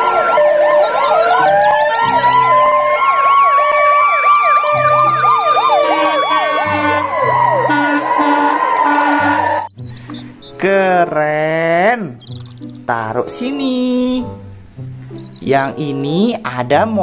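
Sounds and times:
fast siren yelp: 0.0 - 9.7
siren wail: 0.0 - 9.7.

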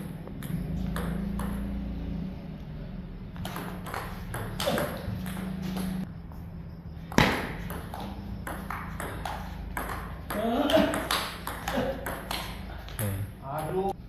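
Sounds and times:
ping pong ball clicking: 0.3 - 1.8, 7.2 - 13.0.

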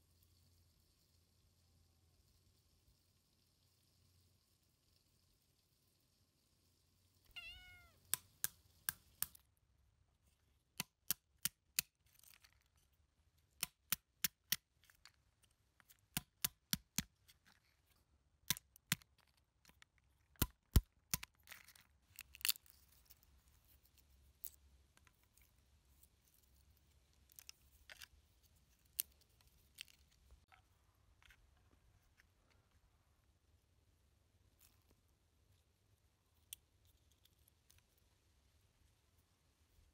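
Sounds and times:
cat meowing: 7.3 - 8.0
nut shells crackling: 20.4 - 23.2.

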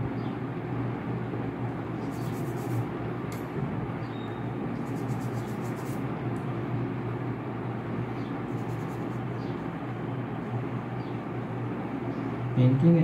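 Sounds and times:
low background hum: 0.0 - 13.0
paintbrush swishing on paper: 2.0 - 2.9, 4.8 - 6.0.

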